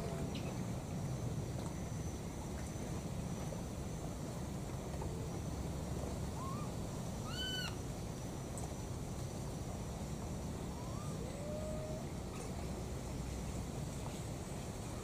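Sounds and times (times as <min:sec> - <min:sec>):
baby monkeys coo calls: 0:06.4 - 0:07.8.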